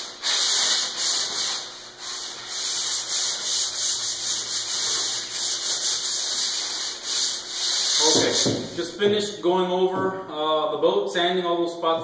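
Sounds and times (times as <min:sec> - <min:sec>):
sandpaper rasping over wood: 0:00.0 - 0:08.9.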